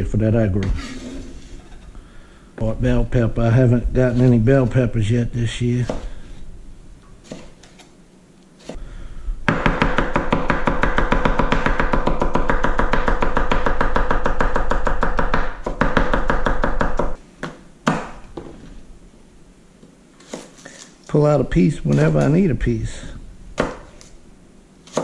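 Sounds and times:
knife chopping vegetables: 7.2 - 7.8, 9.5 - 18.2, 20.2 - 20.9, 23.6 - 24.1.

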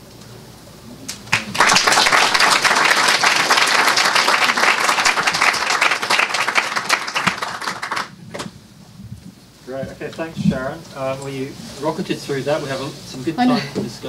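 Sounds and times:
audience clapping: 1.1 - 8.4.

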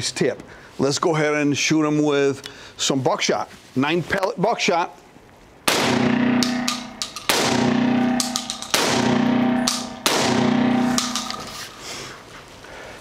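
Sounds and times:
shotgun fire: 5.7 - 11.4
distorted electric guitar chords: 5.9 - 11.6.

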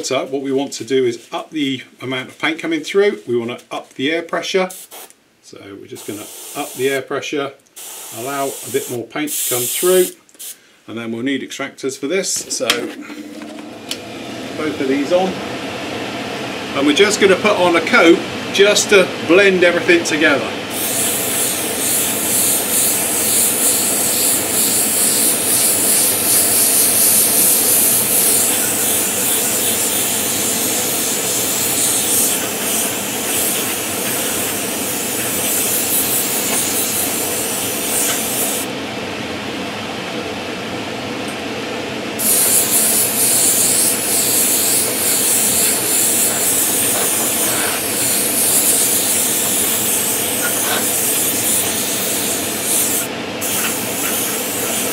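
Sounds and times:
airbrush spraying hiss: 4.7 - 5.2, 6.0 - 7.0, 7.8 - 10.6, 20.7 - 38.7, 42.2 - 54.9
extractor fans running: 12.0 - 54.9.

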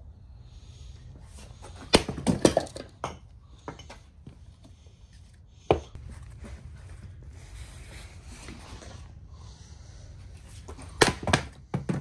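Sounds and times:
axe chopping firewood: 1.9 - 2.9, 11.0 - 12.0.

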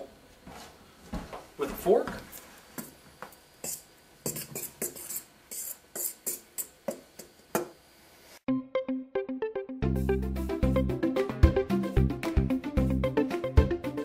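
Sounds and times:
fork scraping a steel bowl: 3.6 - 6.7
electronic music: 8.5 - 14.0.

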